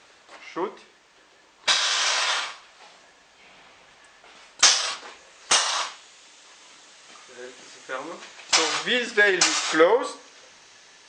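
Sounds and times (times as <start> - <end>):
compressed air hiss: 1.6 - 2.7, 4.6 - 11.0
sharp blasts of air: 1.6 - 2.7, 4.6 - 6.4, 8.5 - 10.0.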